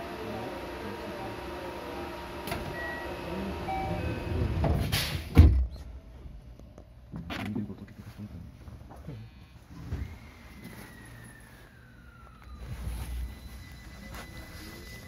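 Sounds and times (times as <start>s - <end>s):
electric train running noise: 0.0s - 5.0s.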